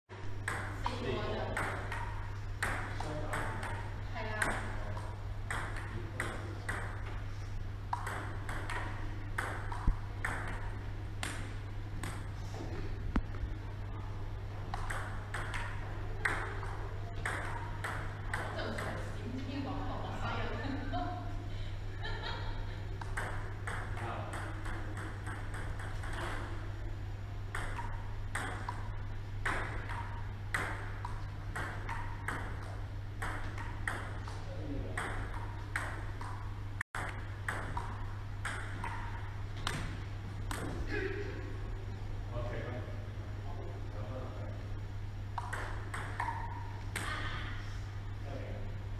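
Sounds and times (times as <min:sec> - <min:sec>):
steady low hum: 0:00.1 - 0:48.9
table tennis ball clicking: 0:00.4 - 0:07.1, 0:07.9 - 0:12.3, 0:14.7 - 0:19.0, 0:23.0 - 0:26.6, 0:27.5 - 0:34.4, 0:35.0 - 0:39.8, 0:45.4 - 0:47.2.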